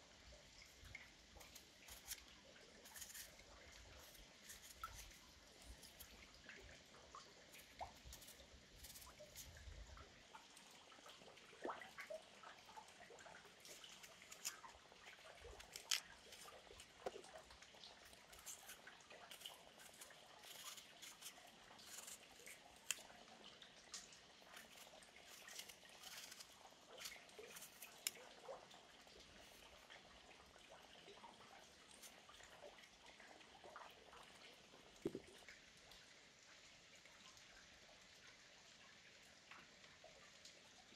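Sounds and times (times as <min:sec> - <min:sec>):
stream water trickling: 0:00.0 - 0:40.9
knife cutting apples on wood: 0:01.4 - 0:03.3, 0:13.7 - 0:14.7, 0:15.5 - 0:16.5, 0:18.3 - 0:23.0, 0:24.6 - 0:28.2.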